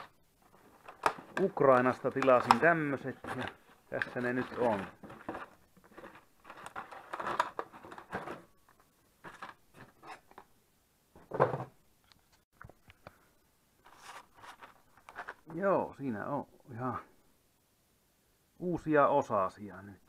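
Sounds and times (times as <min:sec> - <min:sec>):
rustling and crinkling of packaging: 0:00.0 - 0:10.5, 0:13.8 - 0:15.6.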